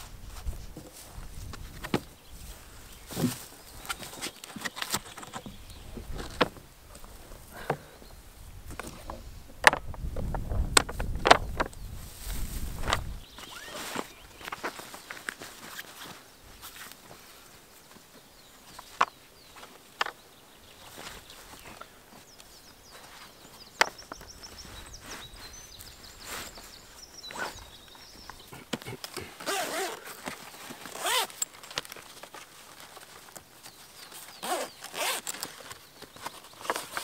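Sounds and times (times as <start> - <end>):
zipper pulls: 13.4 - 14.1, 27.3 - 27.6, 29.2 - 31.6, 34.4 - 35.5.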